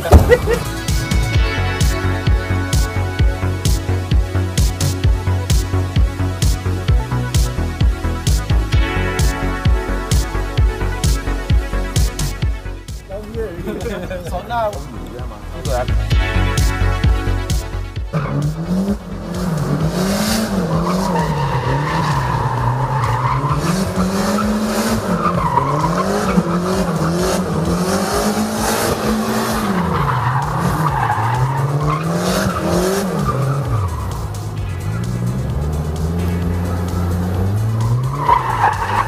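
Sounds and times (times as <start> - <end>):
car engine revving: 0.0 - 8.6, 14.7 - 39.0
tyres squealing: 20.6 - 39.0.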